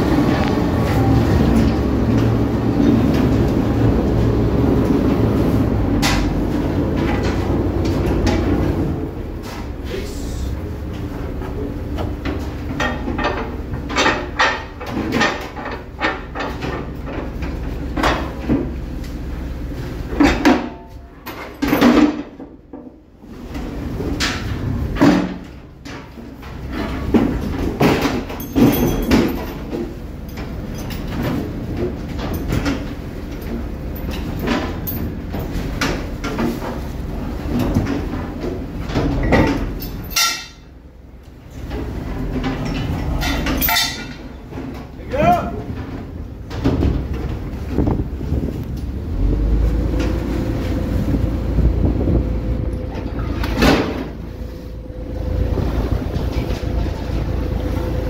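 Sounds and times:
boat engine droning: 0.0 - 14.8, 23.1 - 58.0
chain clanking on metal rail: 24.1 - 37.0, 37.6 - 40.8, 41.5 - 45.5.

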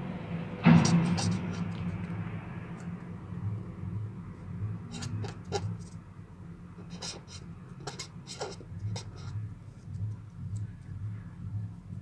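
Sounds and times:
steady low hum: 0.0 - 12.0
pen scratching on paper: 0.7 - 2.0, 4.8 - 6.0, 6.8 - 9.9.

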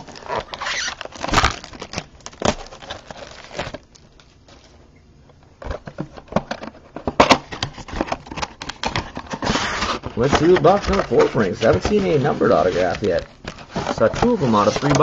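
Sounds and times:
plastic wrap crinkling and tearing: 0.0 - 4.8, 7.1 - 15.0
cardboard box clicks and rustles: 5.6 - 15.0.

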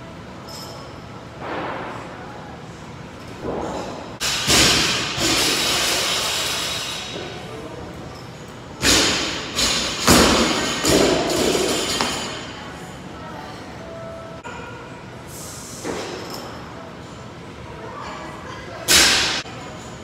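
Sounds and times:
barbell thudding and clanking: 8.8 - 12.4.

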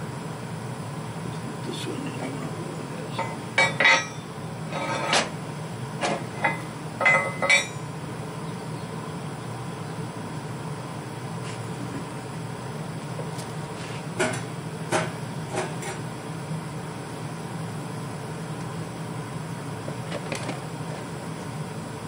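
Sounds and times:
machine hum: 0.0 - 22.0
steel pieces knocking and clinking: 3.2 - 4.2, 6.4 - 7.8.

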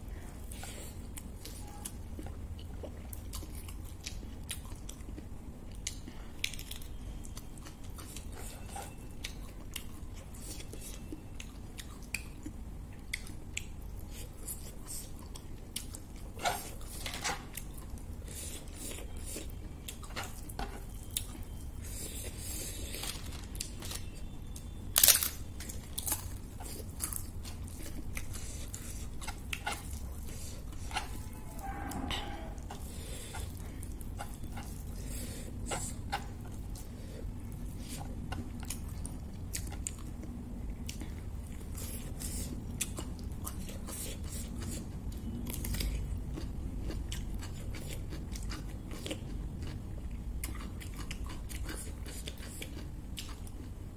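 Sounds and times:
chewing and crunching food: 0.0 - 53.9
crisp crackles and clicks: 22.8 - 31.2.

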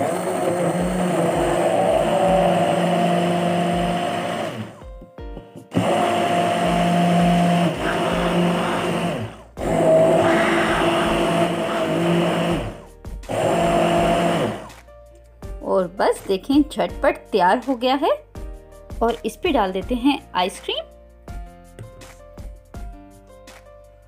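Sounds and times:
hand blender running: 0.0 - 4.8, 5.7 - 14.8.

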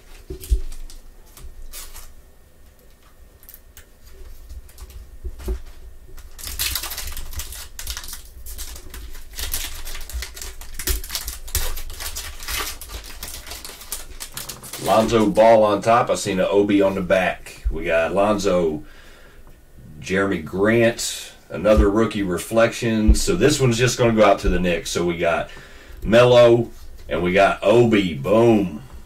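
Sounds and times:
foil wrapper tearing and crinkling: 0.0 - 2.2, 3.4 - 15.4
cards clicking and rustling: 2.8 - 15.2.

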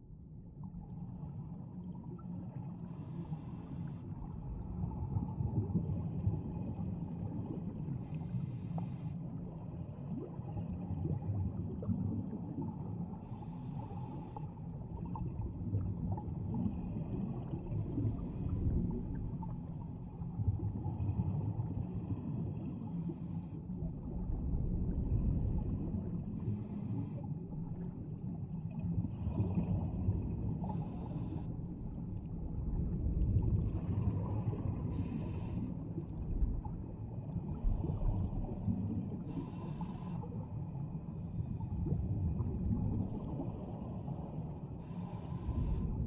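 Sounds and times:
exhaled air bubbling: 0.0 - 46.0
diver breathing through regulator: 2.9 - 4.0, 8.0 - 9.2, 13.2 - 14.5, 26.4 - 27.3, 30.6 - 31.5, 34.8 - 35.9, 39.2 - 40.4, 44.8 - 46.0.

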